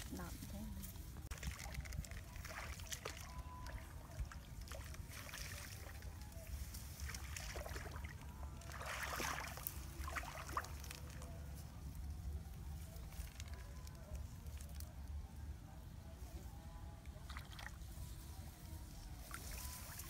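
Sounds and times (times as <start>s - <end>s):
rustling of rice stalks: 0.0s - 15.0s, 17.6s - 20.0s
splashing in shallow water: 1.1s - 12.0s, 17.2s - 18.0s, 19.1s - 20.0s.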